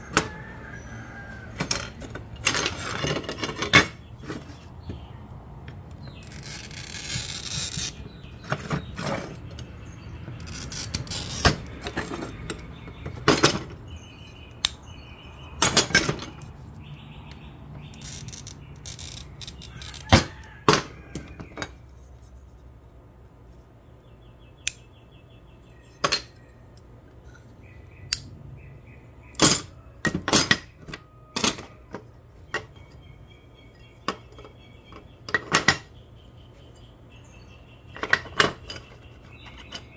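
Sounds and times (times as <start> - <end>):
glass cutter scoring glass: 6.1 - 9.4.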